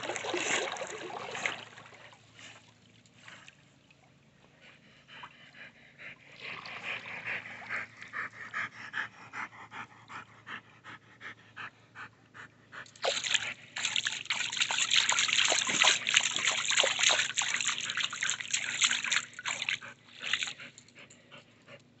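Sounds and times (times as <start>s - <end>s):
pool water sloshing and splashing: 0.0s - 4.6s, 5.2s - 8.6s, 12.8s - 20.9s.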